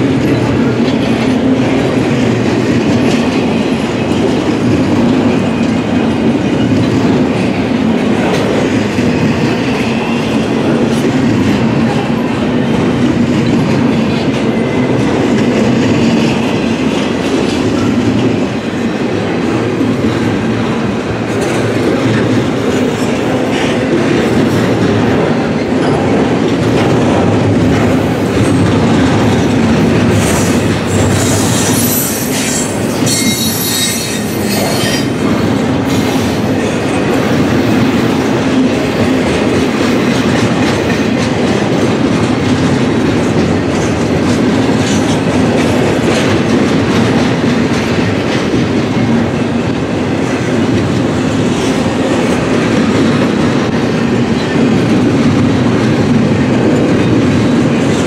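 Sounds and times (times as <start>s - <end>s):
freight train wheels clattering: 0.0s - 58.0s
high wheel squeal: 30.3s - 35.2s.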